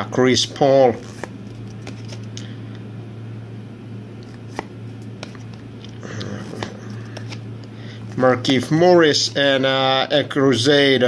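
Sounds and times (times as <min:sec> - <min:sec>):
card sliding rustle: 0:00.9 - 0:02.5, 0:04.2 - 0:08.2
cards clicking: 0:00.9 - 0:02.5, 0:04.2 - 0:07.4
low hum: 0:00.9 - 0:10.1.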